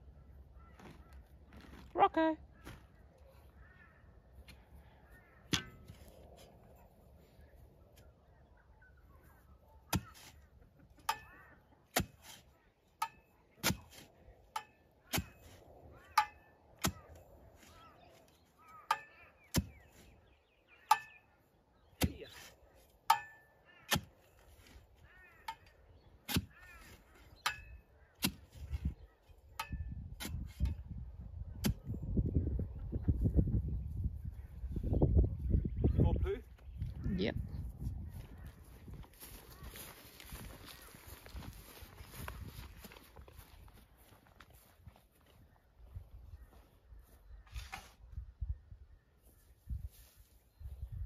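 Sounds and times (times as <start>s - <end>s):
metal tool striking hard soil: 5.5s - 6.5s, 11.9s - 17.2s, 20.8s - 21.2s, 22.0s - 24.8s, 25.4s - 28.6s, 29.5s - 30.8s.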